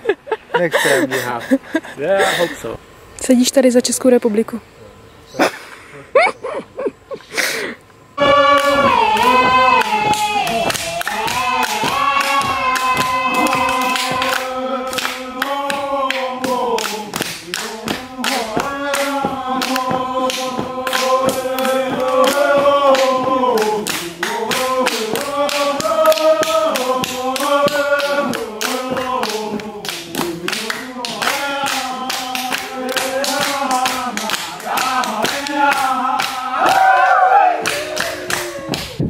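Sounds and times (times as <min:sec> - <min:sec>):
percussive beat: 0:08.2 - 0:36.9
group singing: 0:08.2 - 0:38.8.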